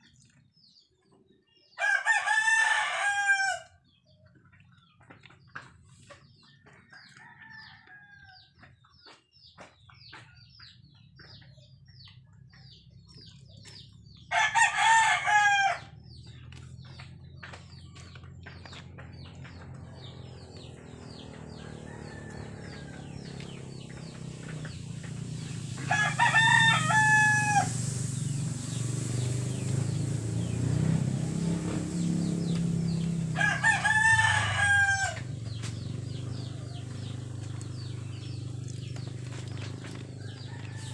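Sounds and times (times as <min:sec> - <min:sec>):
rooster crowing: 0:01.8 - 0:03.8, 0:06.9 - 0:08.6, 0:14.3 - 0:16.0, 0:21.0 - 0:23.9, 0:25.7 - 0:28.8, 0:29.4 - 0:35.4, 0:39.7 - 0:40.9.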